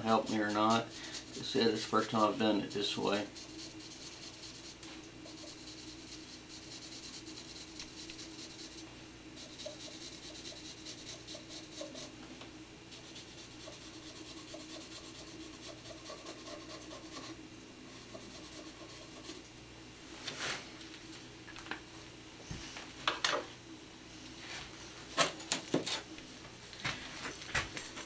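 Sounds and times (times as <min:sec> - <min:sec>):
marker scrubbing on steel: 0:00.0 - 0:08.8, 0:09.4 - 0:12.1, 0:13.0 - 0:19.4.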